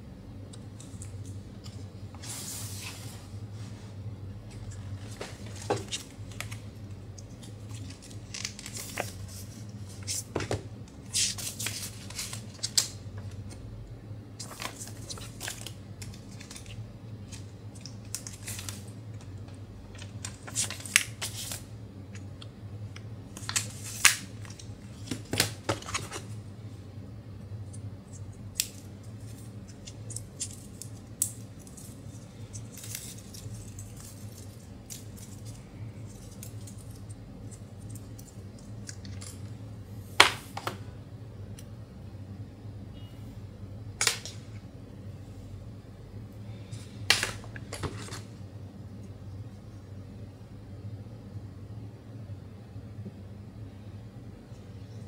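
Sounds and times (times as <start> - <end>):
faint low hum: 0.0 - 55.0
paper sleeve rustling: 2.2 - 3.9.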